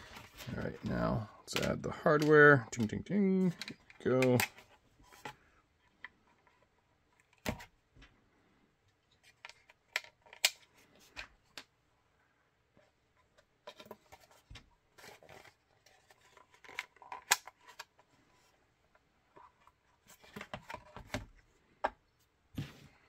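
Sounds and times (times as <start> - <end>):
plastic and hardware clicks: 16.2 - 18.0.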